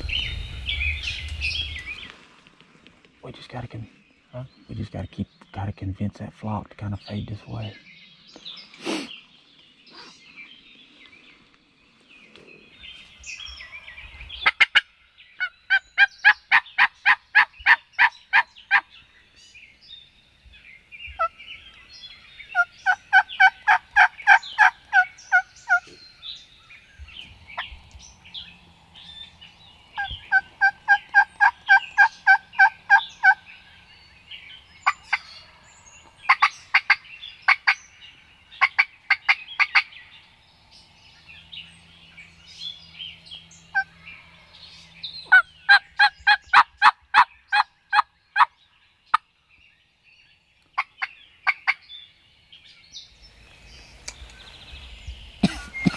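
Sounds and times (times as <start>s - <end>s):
songbirds chirping faintly: 0.0s - 55.9s
turkey clucks: 14.4s - 14.8s, 22.6s - 26.0s, 30.0s - 33.4s, 36.3s - 37.8s, 38.6s - 39.9s, 45.3s - 48.5s
wild turkey yelping: 22.5s - 26.0s, 30.0s - 33.4s, 36.3s - 37.8s, 38.6s - 39.9s, 45.3s - 48.5s.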